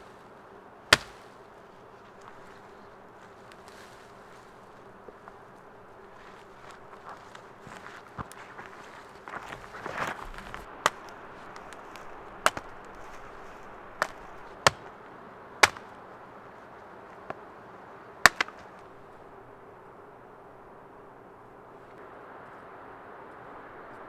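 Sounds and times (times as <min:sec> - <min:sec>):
dry branches cracking: 0:00.0 - 0:19.4
brush rustling underfoot: 0:00.0 - 0:24.0.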